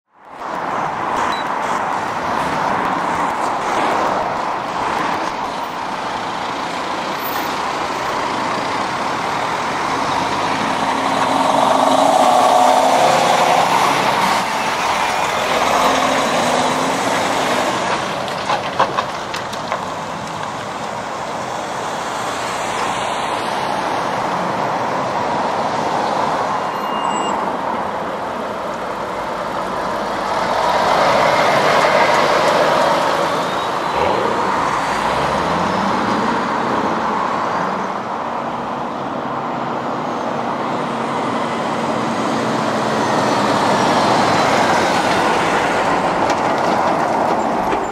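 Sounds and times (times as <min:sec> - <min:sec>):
traffic tyre and engine noise: 0:00.1 - 0:47.9.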